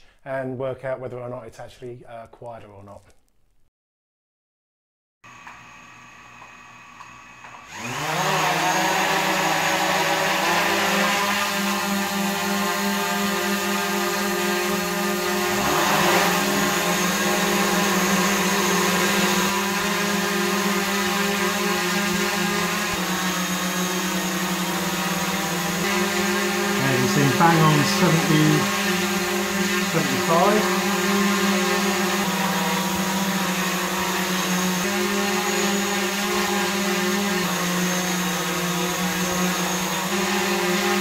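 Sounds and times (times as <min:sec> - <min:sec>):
drone propeller whine and hum: 0:07.0 - 0:39.7.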